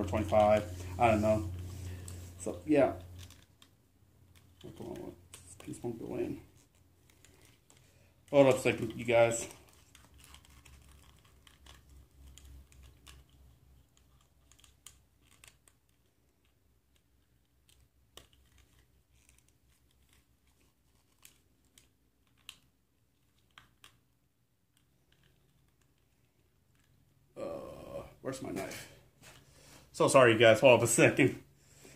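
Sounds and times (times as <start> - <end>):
plastic toy parts clicking: 9.6 - 24.0.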